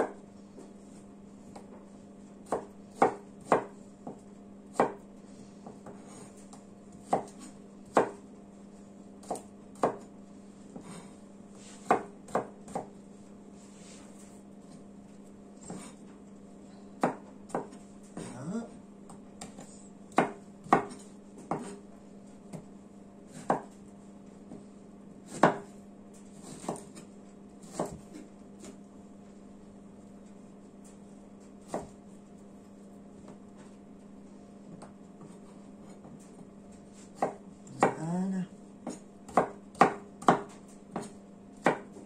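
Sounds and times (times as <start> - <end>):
knife chopping on cutting board: 0.0 - 8.3, 9.2 - 13.0, 15.6 - 16.1, 17.0 - 18.4, 19.1 - 21.9, 22.5 - 22.7, 23.3 - 23.9, 24.5 - 28.8, 30.8 - 32.1, 34.7 - 42.0.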